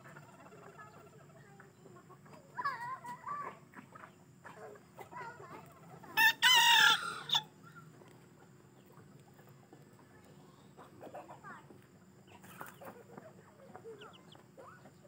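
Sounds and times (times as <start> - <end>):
rooster clucking: 3.7 - 7.5
rooster crowing: 6.2 - 7.4.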